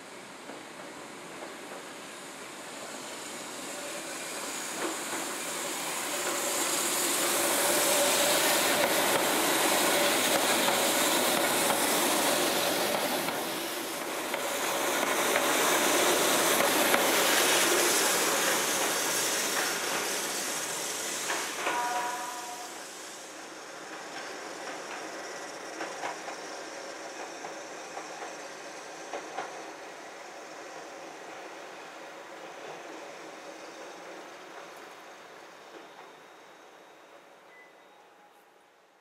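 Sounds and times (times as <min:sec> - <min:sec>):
electric train running on street track: 0:00.0 - 0:38.2
rail clicks: 0:04.7 - 0:22.9, 0:23.8 - 0:28.4, 0:29.1 - 0:29.7.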